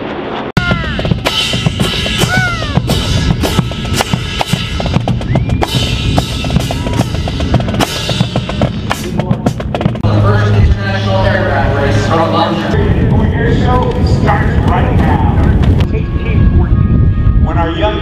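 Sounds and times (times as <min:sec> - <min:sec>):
marching drum line: 0:00.6 - 0:11.4
whistle blasts: 0:05.1 - 0:07.3.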